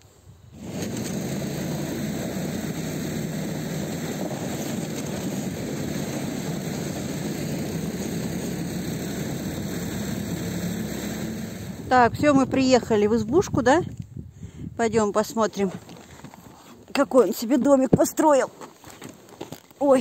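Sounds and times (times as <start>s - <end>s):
snowmobile engine: 0.5s - 13.2s.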